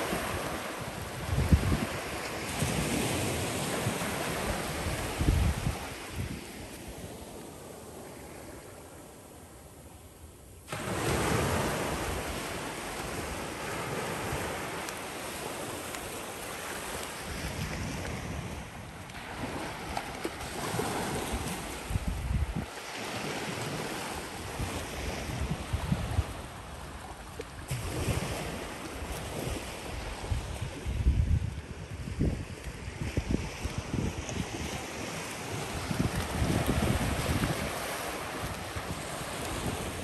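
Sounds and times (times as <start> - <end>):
wind buffeting microphone: 0.0 - 6.7, 16.8 - 40.0
small waves on sandy shore: 0.0 - 40.0.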